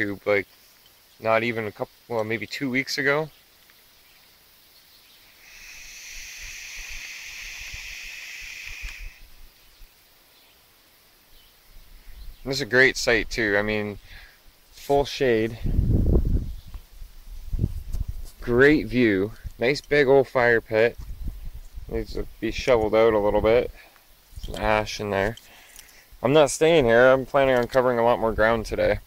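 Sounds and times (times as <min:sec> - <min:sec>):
vape coil sizzling: 0:05.4 - 0:09.4.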